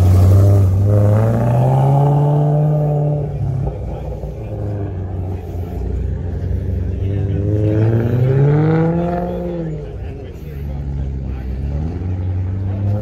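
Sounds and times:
car engine accelerating: 0.0s - 13.0s.

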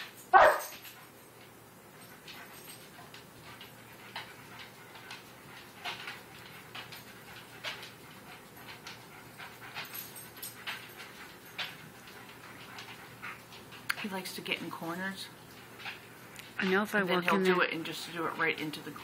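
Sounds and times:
dog panting: 0.0s - 19.0s.

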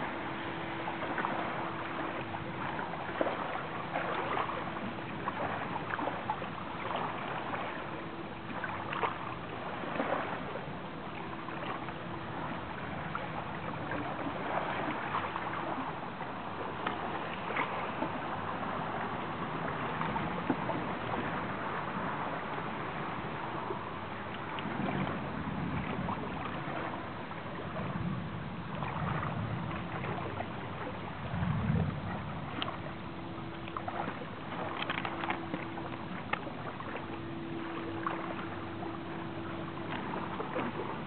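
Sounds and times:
faint steady hum: 0.0s - 41.0s
water lapping at shore: 0.0s - 41.0s.

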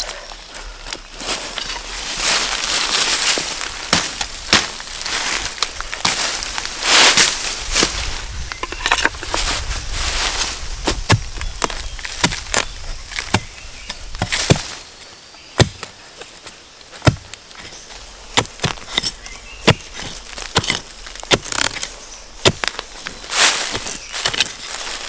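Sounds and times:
hand tool chopping into soil: 3.1s - 6.4s, 10.9s - 14.8s, 15.6s - 16.0s, 16.9s - 24.7s.

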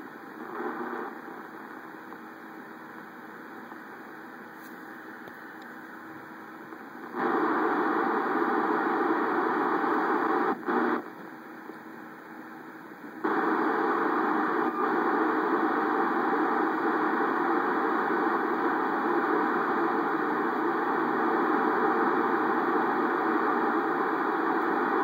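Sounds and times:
radio static hiss: 0.0s - 25.0s.

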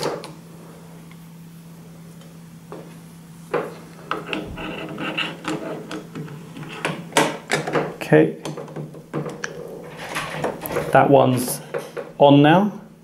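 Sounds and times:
faint steady hum: 0.0s - 13.0s
metal door handle clicking and rattling: 7.5s - 11.0s.

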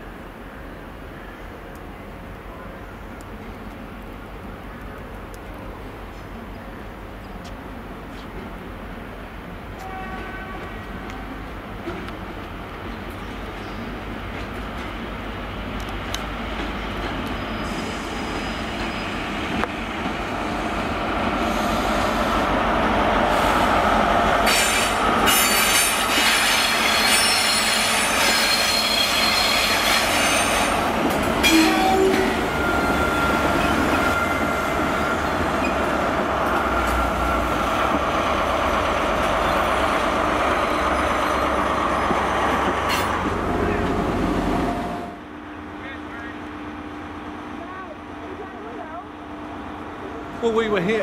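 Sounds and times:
diesel train engine and wheels: 0.0s - 51.0s
high-pitched metallic squeal: 24.5s - 30.8s.

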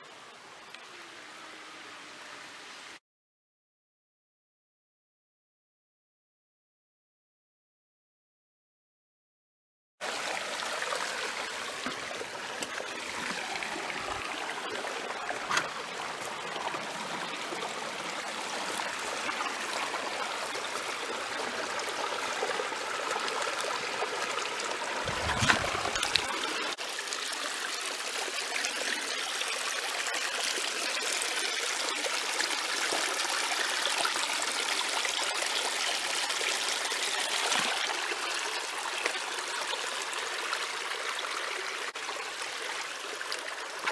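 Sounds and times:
creek flowing over rocks: 10.0s - 43.9s.

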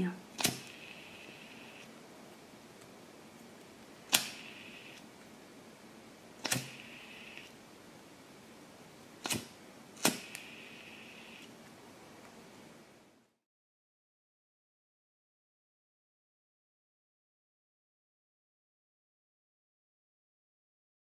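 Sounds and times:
gas flame hissing: 0.4s - 1.9s, 4.0s - 5.0s, 6.4s - 7.5s, 9.2s - 11.4s.

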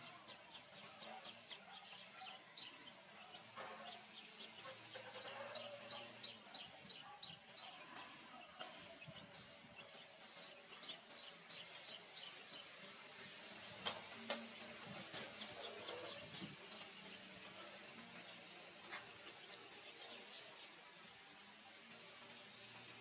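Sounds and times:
faint outdoor ambience: 0.0s - 23.0s.

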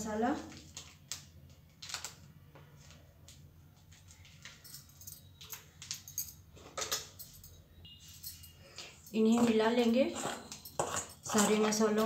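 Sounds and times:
spoon clinking on steel utensils: 8.2s - 12.0s.

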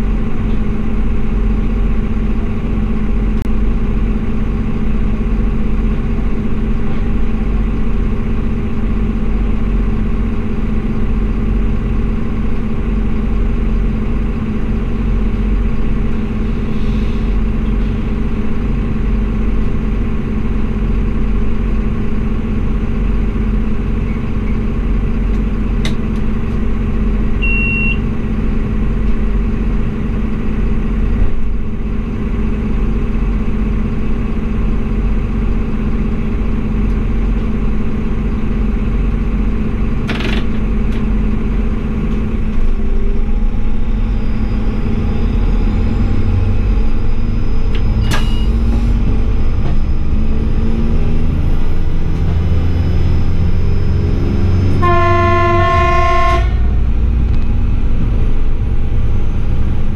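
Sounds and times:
diesel railcar engine drone: 0.0s - 59.9s
wheel and rail rumble: 0.0s - 59.9s
short high beep: 27.4s - 28.0s, 48.0s - 48.7s.

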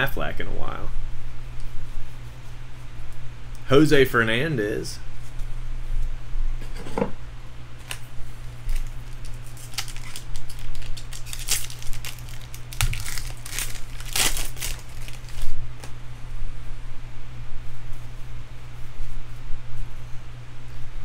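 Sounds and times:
foil wrapper tearing and crinkling: 7.8s - 15.9s.

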